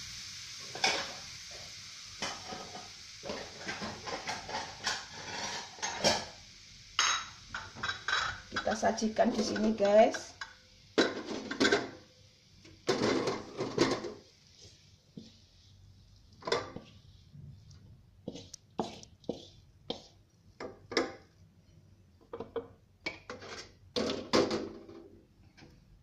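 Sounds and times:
wooden spatula scraping metal wok: 2.2 - 6.3, 8.0 - 10.3, 12.9 - 17.3, 18.2 - 20.2, 23.2 - 23.8.

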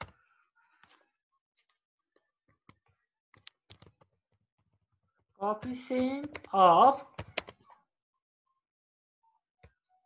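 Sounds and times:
faint keyboard typing: 2.6 - 4.1, 5.6 - 7.6.

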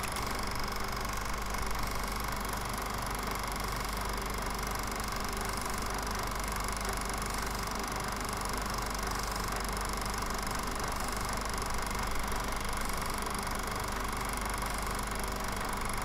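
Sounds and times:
film projector whirring: 0.0 - 16.0.

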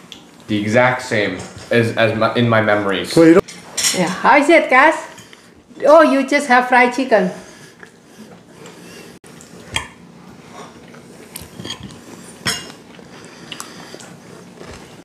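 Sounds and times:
cutlery clinking on plates: 11.5 - 12.8.

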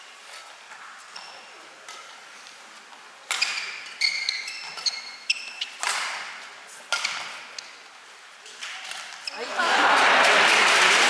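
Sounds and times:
shoes squeaking on court floor: 0.1 - 7.9, 8.7 - 9.4
racket striking shuttlecock: 5.7 - 7.6.

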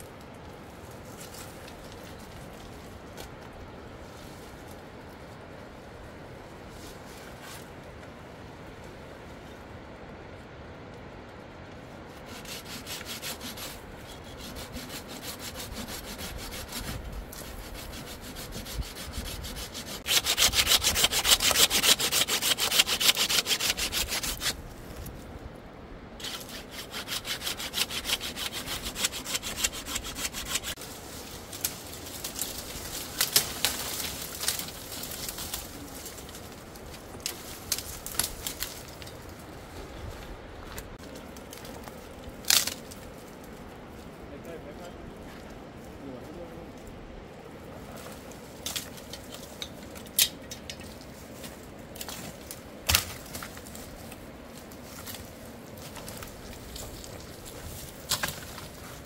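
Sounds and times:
rasping scraping strokes: 12.1 - 25.2, 26.2 - 39.1.

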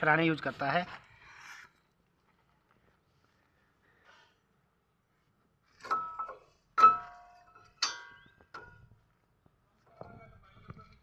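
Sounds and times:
metal brake pads clinking: 5.8 - 8.8.

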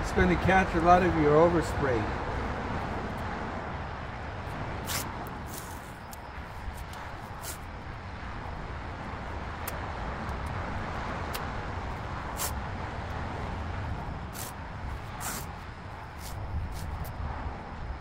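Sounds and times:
masking tape rasping: 4.8 - 6.2, 6.8 - 7.6, 14.3 - 15.6.

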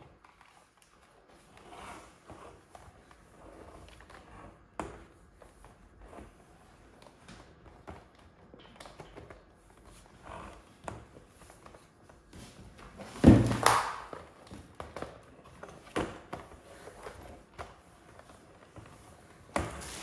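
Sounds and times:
hose thump and rustle: 12.4 - 14.0.

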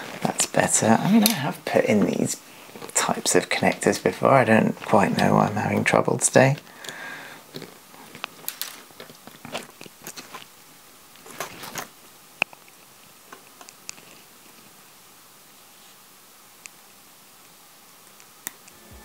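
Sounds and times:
ribbon cable clicks and crackles: 6.6 - 10.5.

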